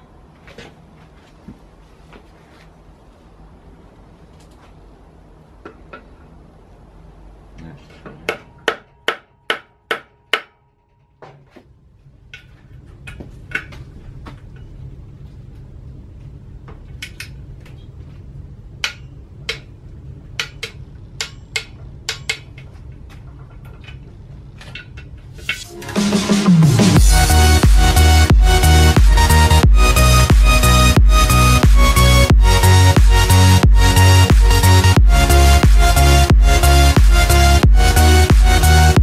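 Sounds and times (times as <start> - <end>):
electronic music: 25.5 - 39.0.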